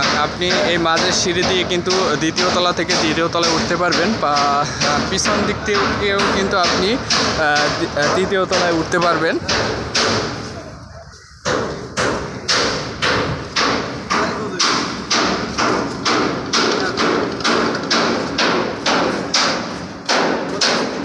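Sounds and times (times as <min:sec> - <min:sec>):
sharp ringing knocks: 0:00.0 - 0:10.6, 0:11.4 - 0:21.0.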